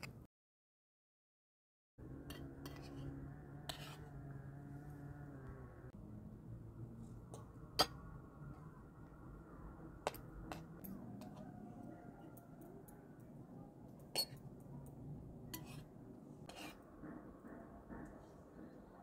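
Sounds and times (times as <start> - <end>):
spoons clinking against plates: 14.0 - 14.4.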